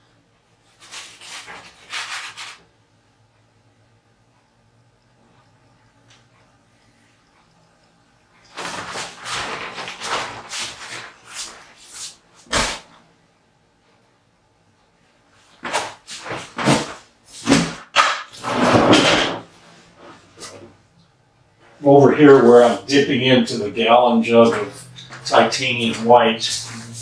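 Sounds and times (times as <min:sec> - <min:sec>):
paintbrush scrubbing on canvas: 0:00.7 - 0:02.6, 0:09.0 - 0:12.2.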